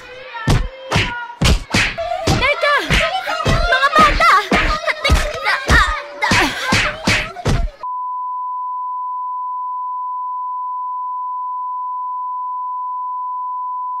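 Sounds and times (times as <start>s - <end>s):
steady pure test tone beep: 7.8s - 14.0s.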